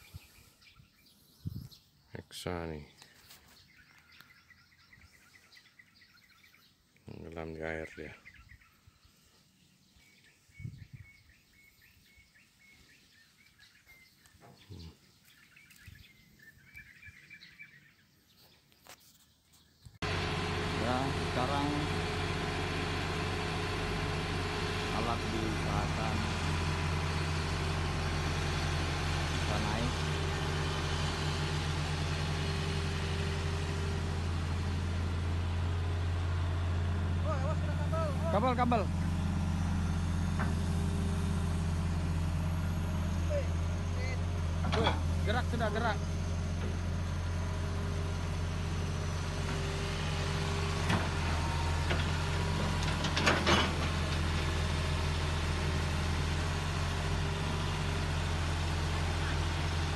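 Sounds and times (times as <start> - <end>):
excavator diesel engine running: 20.0 - 59.9.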